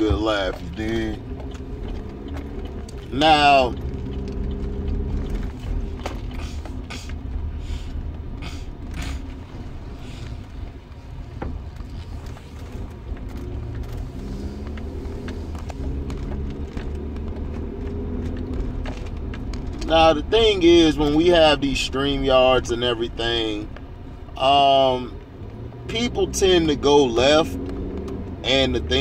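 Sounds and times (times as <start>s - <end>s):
car cabin low rumble: 0.0s - 29.0s
interior creaks and clicks: 0.2s - 7.4s, 11.2s - 19.9s.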